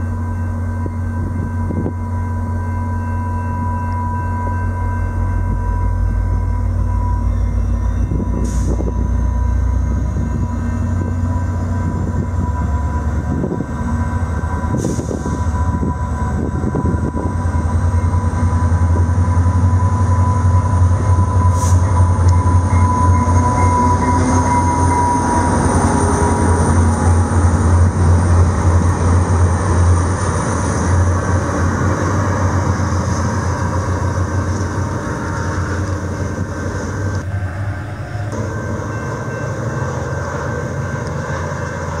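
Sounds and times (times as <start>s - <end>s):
diesel locomotive rumbling: 0.0s - 42.0s
train wheels rolling on rails: 4.4s - 42.0s.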